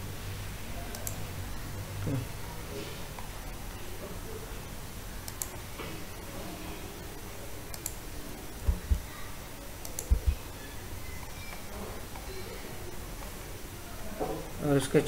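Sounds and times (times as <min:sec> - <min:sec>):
steady low hum and hiss: 0:00.0 - 0:15.0
computer mouse clicking: 0:00.9 - 0:01.2, 0:05.2 - 0:05.6, 0:07.7 - 0:08.0, 0:09.8 - 0:10.4
dull low knocks: 0:08.7 - 0:09.0.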